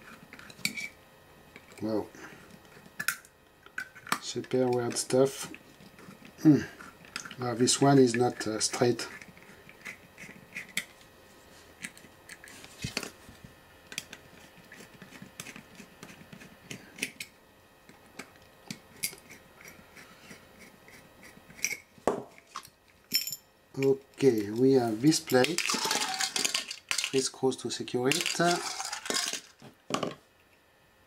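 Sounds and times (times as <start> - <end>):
small metal parts clicking: 25.3 - 27.3, 28.1 - 29.5.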